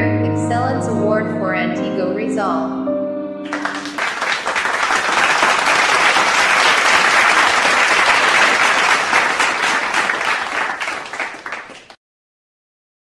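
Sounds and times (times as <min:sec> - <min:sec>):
crowd applauding: 0:03.5 - 0:12.0.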